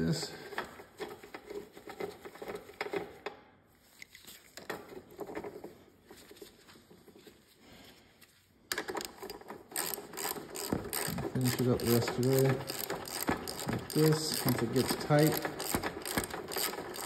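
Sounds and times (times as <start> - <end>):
socket wrench clicking and rattling: 8.7 - 17.0.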